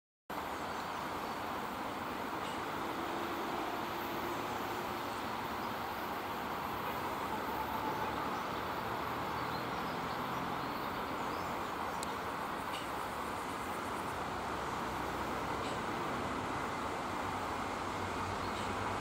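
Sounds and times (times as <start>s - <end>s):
electric locomotive hauling train: 0.3s - 19.0s.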